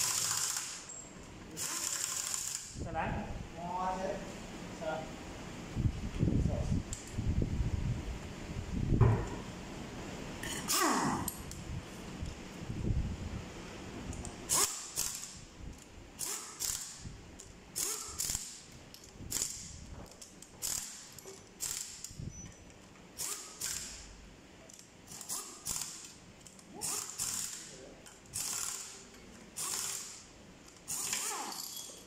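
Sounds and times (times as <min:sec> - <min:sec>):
ratchet wrench clicking: 0:00.0 - 0:01.0, 0:01.6 - 0:02.8, 0:14.2 - 0:22.2, 0:23.2 - 0:24.1, 0:24.7 - 0:31.9.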